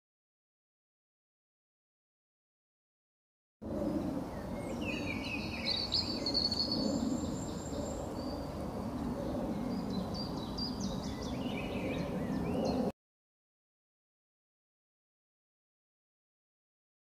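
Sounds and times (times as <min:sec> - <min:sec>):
birds chirping and trilling: 0:03.7 - 0:12.9.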